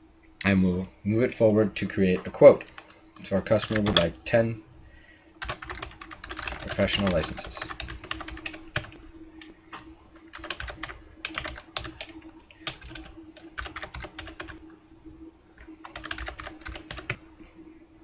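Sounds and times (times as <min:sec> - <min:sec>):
computer keyboard typing: 0:02.6 - 0:04.2, 0:05.4 - 0:09.0, 0:10.1 - 0:14.7, 0:15.6 - 0:17.2.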